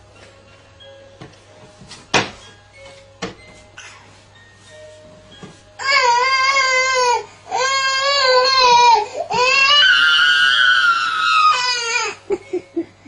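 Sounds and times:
baby crying: 0:05.8 - 0:12.2
baby sobbing: 0:05.8 - 0:12.5.

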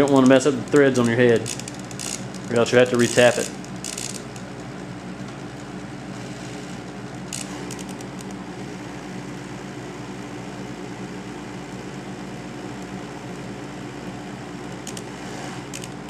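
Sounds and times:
electric drill running slowly: 0:01.0 - 0:04.4, 0:06.1 - 0:08.8.

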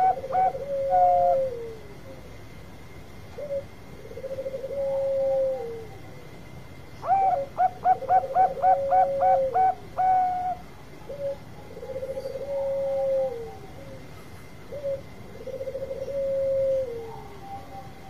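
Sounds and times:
doves cooing: 0:00.0 - 0:02.4, 0:03.3 - 0:06.2, 0:07.0 - 0:18.0.

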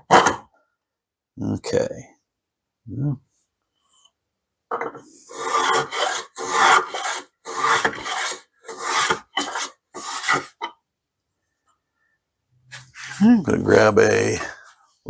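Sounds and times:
hand plane cutting wood: 0:05.2 - 0:10.6.

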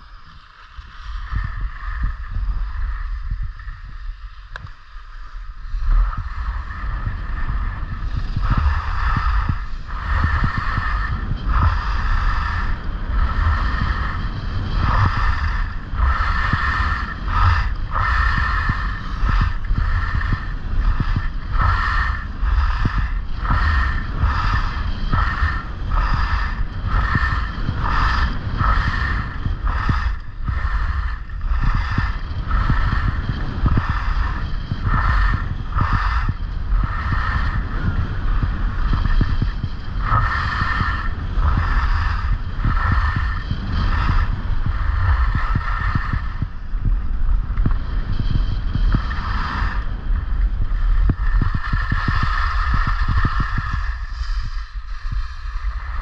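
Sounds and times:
wind rumble on microphone: 0:00.0 - 0:56.0.

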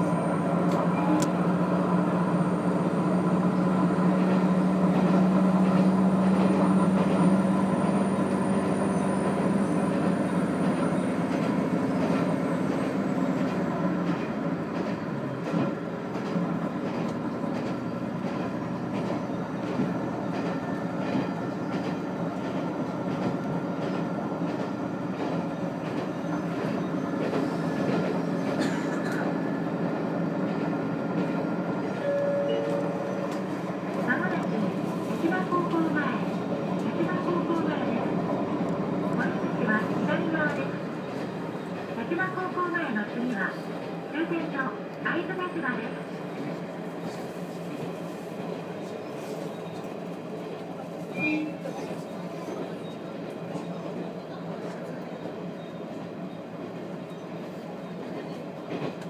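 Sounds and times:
railcar engine drone: 0:00.0 - 0:59.0
train wheels clicking over rail joints: 0:09.9 - 0:29.4.

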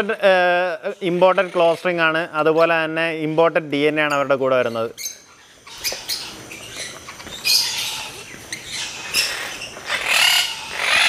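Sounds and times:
parakeets squawking: 0:00.0 - 0:11.0.

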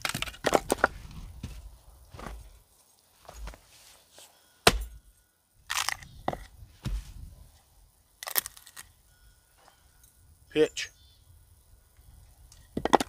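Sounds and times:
wood cracking and splitting: 0:00.0 - 0:01.5, 0:05.6 - 0:07.0, 0:08.2 - 0:08.9
axe striking wood: 0:04.6 - 0:05.0.

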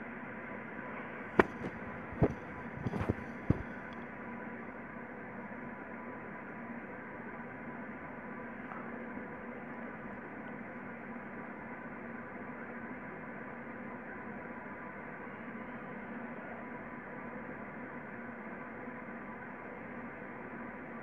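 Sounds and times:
steady hum and hiss: 0:00.0 - 0:12.8.

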